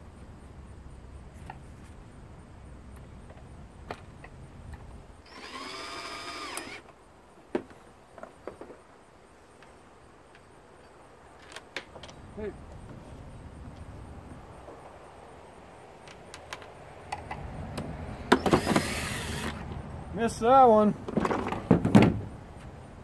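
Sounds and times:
cordless drill motor whine: 5.2s - 6.8s, 18.3s - 19.6s.

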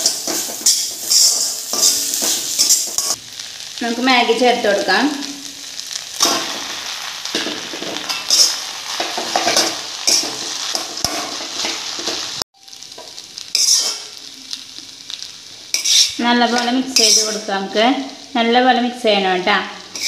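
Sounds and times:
spoon scraping and knocking pan: 0.0s - 3.2s, 7.3s - 12.3s, 12.9s - 14.2s, 15.7s - 17.5s
food sizzling in a frying pan: 0.0s - 20.0s.

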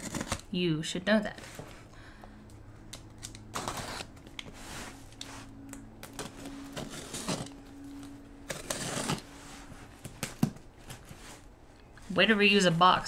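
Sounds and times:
faint steady hum: 0.0s - 13.0s
cardboard box tearing and rustling: 3.3s - 4.3s, 6.0s - 7.7s, 8.4s - 9.4s.

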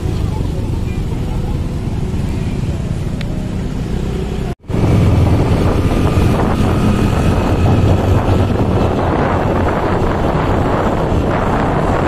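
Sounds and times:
motorcycle engine running: 0.0s - 12.0s
wind buffeting microphone: 0.0s - 12.0s.

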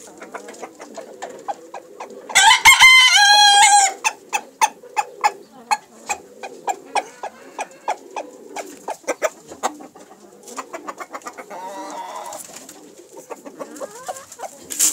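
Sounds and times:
rooster clucking: 0.0s - 14.9s
rooster wavering call: 2.3s - 4.1s, 6.8s - 8.7s, 11.4s - 12.4s.

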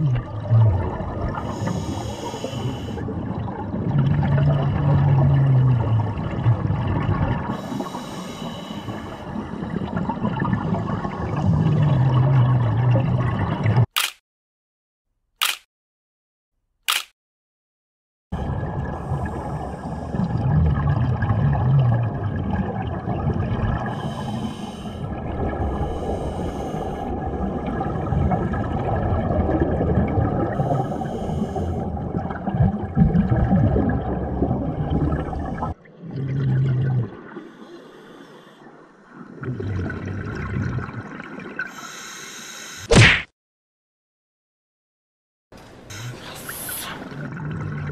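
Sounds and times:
exhaled bubbles: 0.0s - 13.9s, 18.4s - 41.7s, 45.9s - 47.9s
sharp click: 14.0s - 14.2s, 15.4s - 15.7s, 16.8s - 17.2s.

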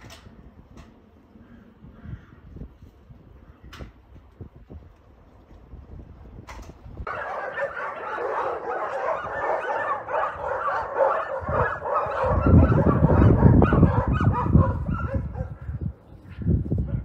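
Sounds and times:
dogs barking and yelping: 7.0s - 15.8s.

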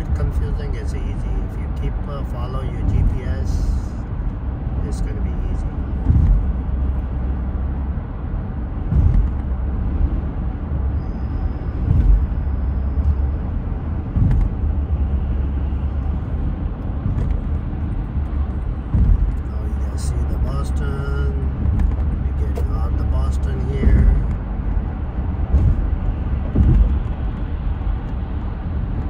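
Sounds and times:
car road and engine noise: 0.0s - 29.0s
short thumps: 5.7s - 7.2s, 8.7s - 10.1s, 11.7s - 13.3s, 14.0s - 15.1s, 16.8s - 19.7s, 21.4s - 28.2s.

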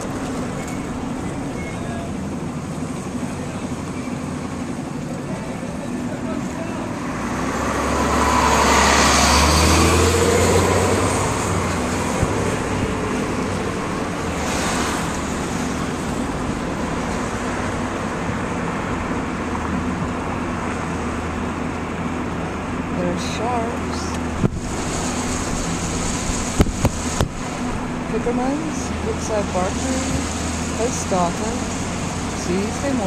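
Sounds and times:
bus engine hum and tyre noise: 0.0s - 33.0s
steady road noise: 0.0s - 33.0s
vehicle swishing past: 6.8s - 21.2s, 22.9s - 33.0s.

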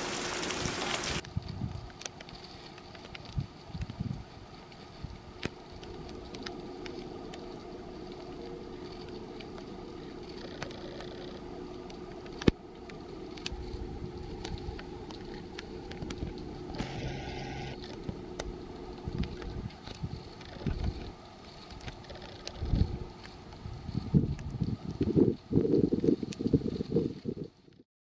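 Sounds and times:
heavy machinery engine hum: 5.6s - 23.8s.

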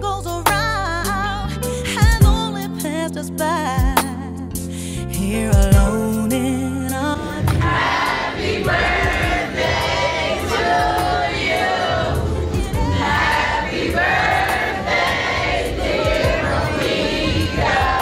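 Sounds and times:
people singing together: 7.1s - 18.0s
crowd noise: 7.2s - 18.0s.

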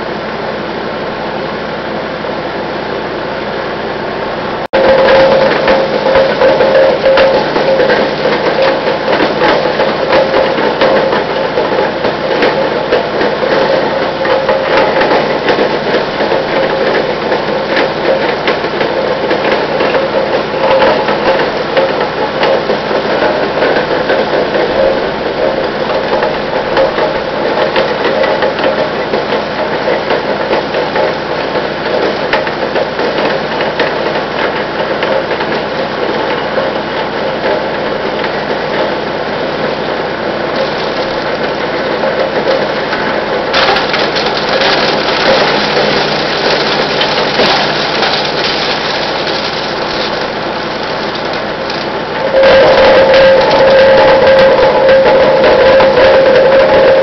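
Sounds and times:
chipper engine running: 0.0s - 57.0s
blades chipping wood: 40.6s - 41.4s, 43.5s - 54.2s.

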